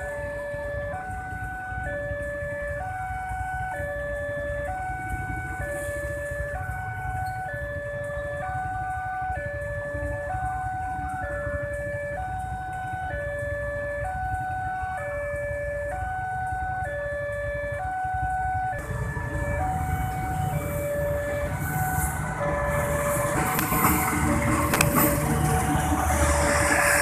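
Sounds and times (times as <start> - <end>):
diesel locomotive rumble: 0.0 - 27.0
rail clatter: 18.8 - 27.0.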